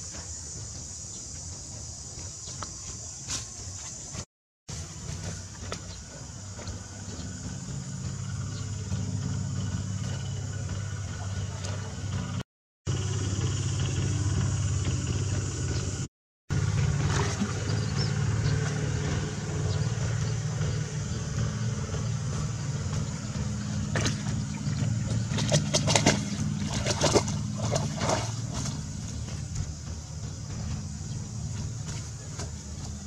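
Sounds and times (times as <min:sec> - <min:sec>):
low engine-like hum: 0:00.0 - 0:33.0
puppy splashing in water: 0:16.8 - 0:18.9, 0:23.8 - 0:29.5.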